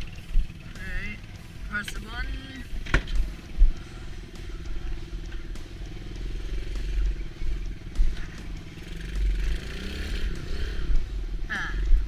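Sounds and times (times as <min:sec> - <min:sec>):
small engine idling: 0:00.0 - 0:11.0.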